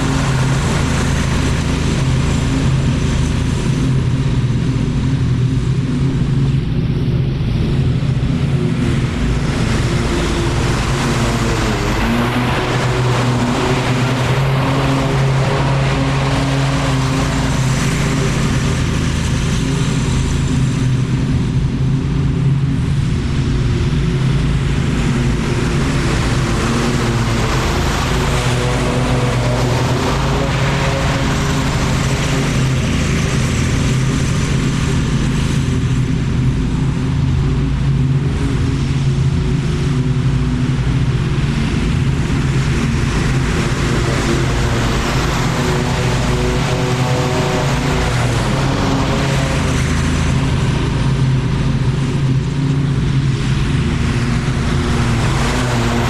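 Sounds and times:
lawn mower engine running: 9.4 - 19.7, 25.0 - 34.1, 41.9 - 56.0.

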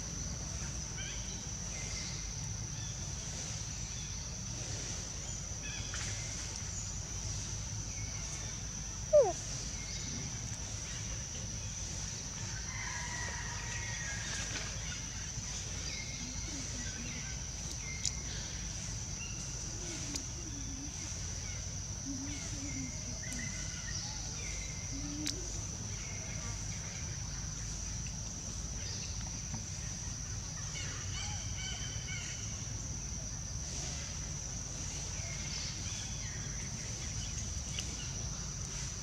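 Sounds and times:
high insect drone: 0.0 - 39.0
low outdoor rumble: 14.0 - 39.0.

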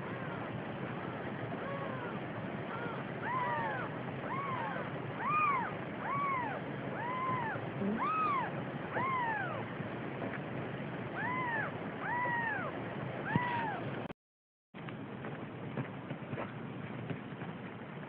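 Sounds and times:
kittens mewing: 0.0 - 9.6, 11.2 - 13.9.

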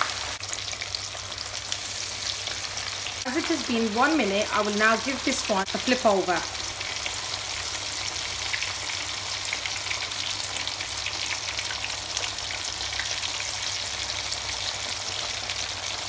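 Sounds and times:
food sizzling in hot oil: 0.0 - 16.0.

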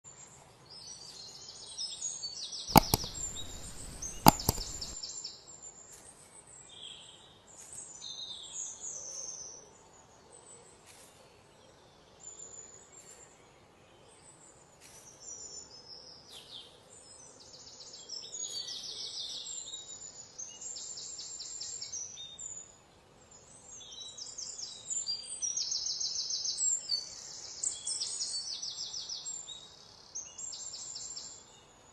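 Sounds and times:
sharp cracks: 2.7 - 5.0.

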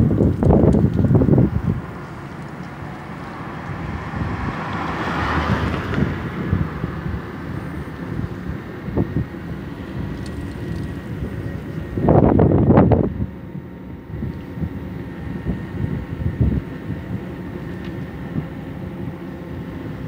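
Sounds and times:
street traffic rumble: 0.0 - 20.0
wind buffeting microphone: 0.0 - 20.0
vehicle passing by: 1.1 - 8.2.

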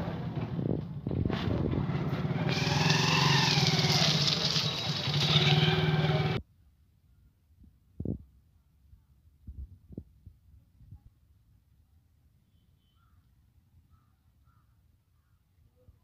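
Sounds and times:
motorcycles passing: 0.0 - 6.4
car passing: 1.3 - 6.4.

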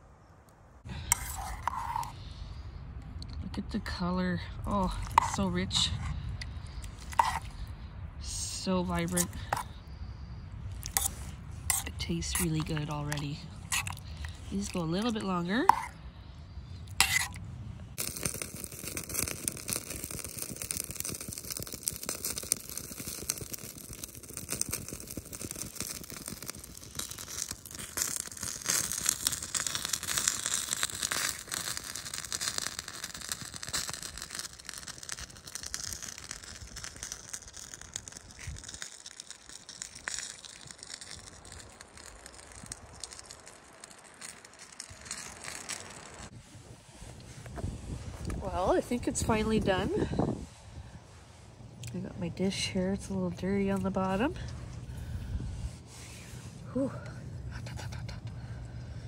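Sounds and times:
wind rustling pine trees: 33.8 - 57.5.

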